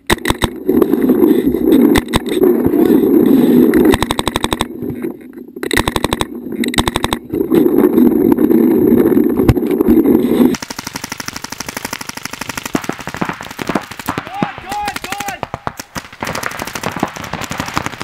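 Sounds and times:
paintball marker firing: 0:10.6 - 0:18.0.

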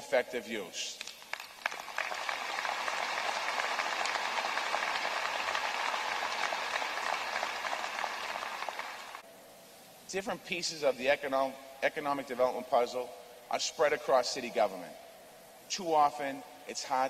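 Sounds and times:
audience applauding: 0:01.0 - 0:09.2.

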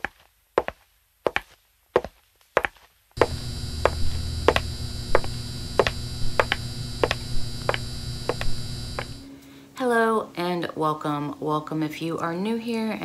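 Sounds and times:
high-heel footsteps: 0:00.0 - 0:09.3
neon sign electrical hum: 0:03.2 - 0:09.4.

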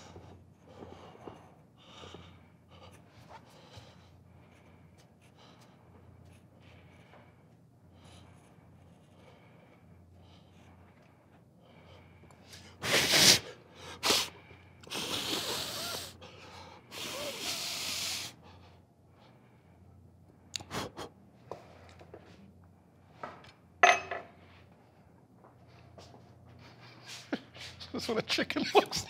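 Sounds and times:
short hissing sounds: 0:12.8 - 0:14.3.

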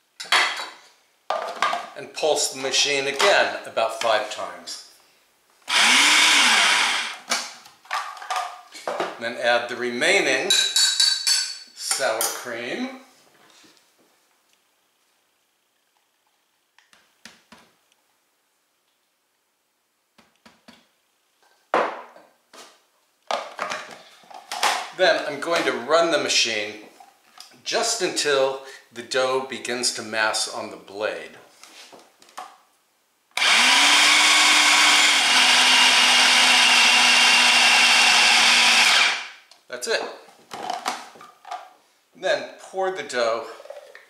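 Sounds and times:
food processor motor running: 0:05.7 - 0:07.2, 0:33.4 - 0:39.3.

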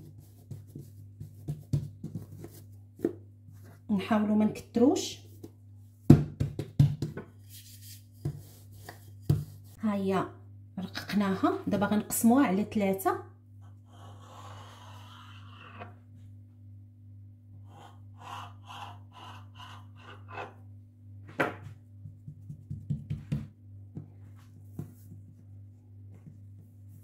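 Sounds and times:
low electrical hum: 0:00.0 - 0:27.0
scraping strokes on a worktop: 0:07.3 - 0:09.8, 0:13.6 - 0:16.2, 0:17.6 - 0:20.7.

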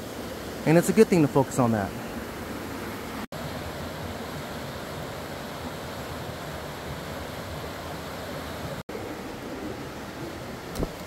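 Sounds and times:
rushing creek water: 0:00.0 - 0:11.0.

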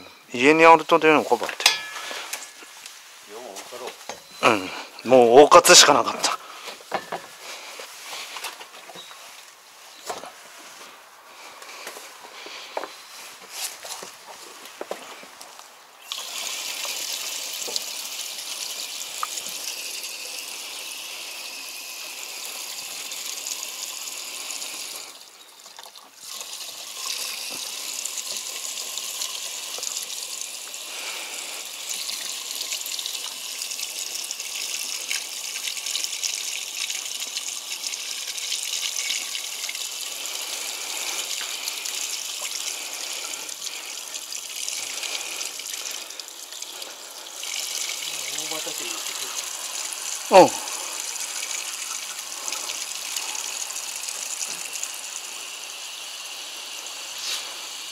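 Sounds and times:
fuel pouring from a can: 0:16.0 - 0:57.9.

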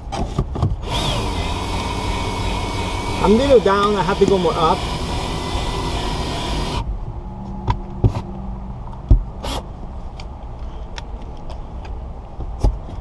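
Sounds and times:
cordless drill stopping: 0:00.8 - 0:06.8.

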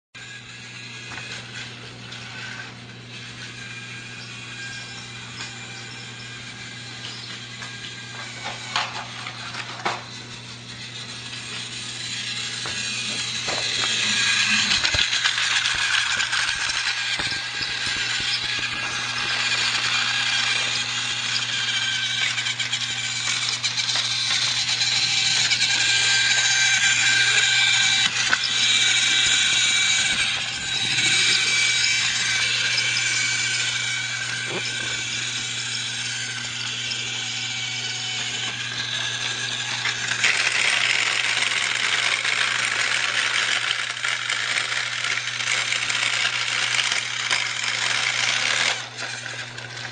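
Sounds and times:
toy train motor whirring: 0:00.2 - 0:49.9
toy train rattling on track: 0:00.2 - 0:49.9.

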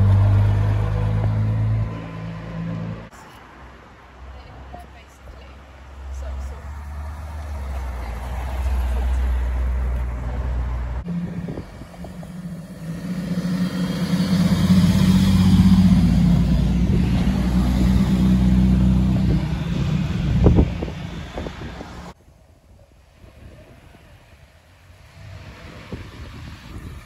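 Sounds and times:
car engine passing close: 0:00.0 - 0:03.2, 0:06.0 - 0:22.2
car engine passing with low hum: 0:00.0 - 0:22.2.

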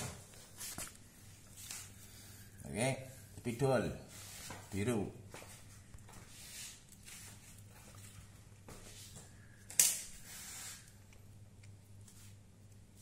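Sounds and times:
low steady hum: 0:00.0 - 0:13.0
scratchy hiss: 0:06.1 - 0:08.1, 0:09.8 - 0:11.1.

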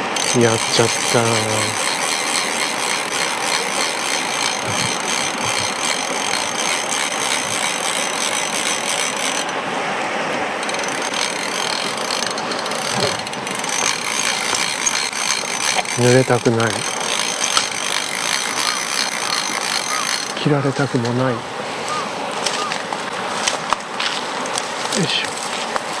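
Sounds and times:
fly reel drag clicking: 0:00.0 - 0:09.6, 0:10.6 - 0:20.4.

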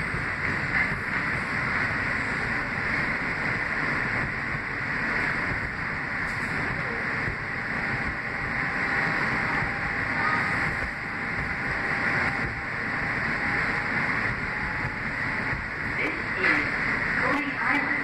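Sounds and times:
faint steady whine: 0:00.0 - 0:18.0
train wheels rumbling on rail: 0:00.0 - 0:18.0.

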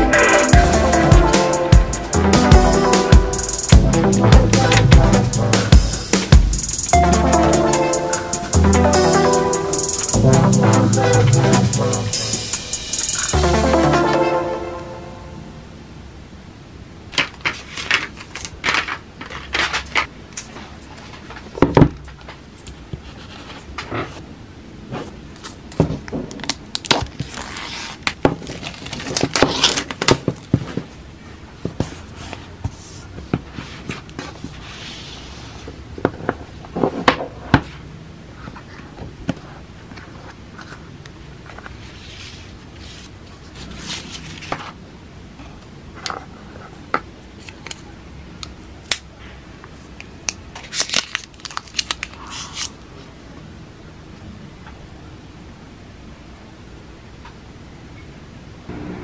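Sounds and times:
cardboard tearing and scraping: 0:26.8 - 0:30.5, 0:50.6 - 0:52.7.

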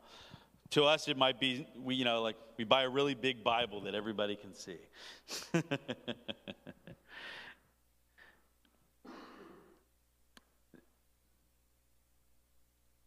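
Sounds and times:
man breathing and sighing: 0:00.0 - 0:00.6, 0:07.0 - 0:09.9
man laughing: 0:05.3 - 0:07.2.

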